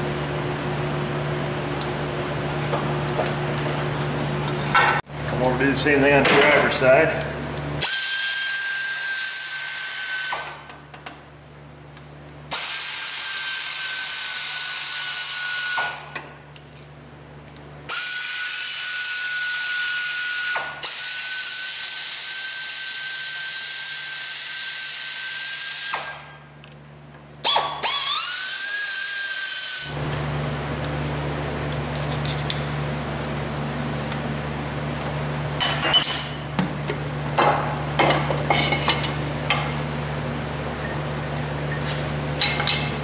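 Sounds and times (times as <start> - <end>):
air ratchet whining: 27.4 - 30.0.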